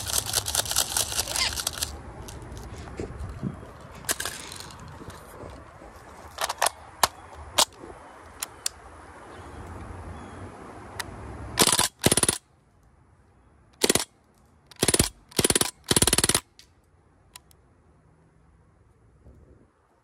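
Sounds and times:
air gun firing rapid bursts: 0:11.6 - 0:12.4, 0:13.8 - 0:14.1, 0:14.8 - 0:16.5.

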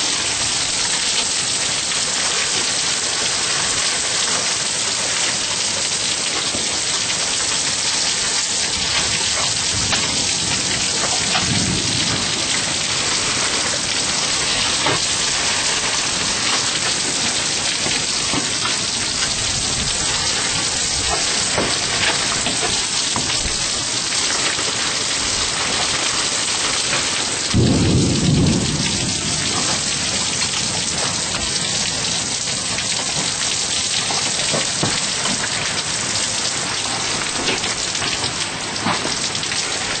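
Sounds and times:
hailstones ticking: 0:00.0 - 0:40.0
heavy rain hissing: 0:00.0 - 0:40.0
thunder boom: 0:09.6 - 0:15.9, 0:27.5 - 0:31.0.

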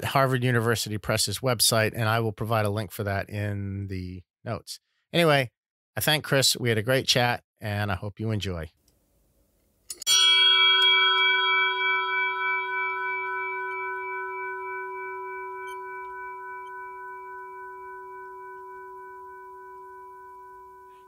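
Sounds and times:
bell ringing: 0:09.9 - 0:21.0.

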